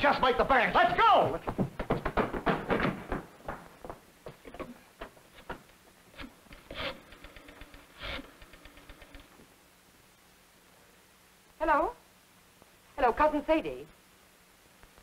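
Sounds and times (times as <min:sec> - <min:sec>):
faint footsteps: 0:00.0 - 0:09.5.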